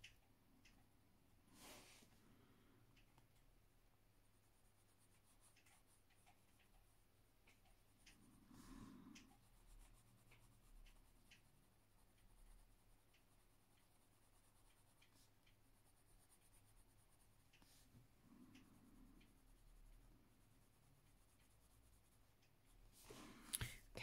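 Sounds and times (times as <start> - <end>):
pencil scratching on paper: 4.2 - 23.0.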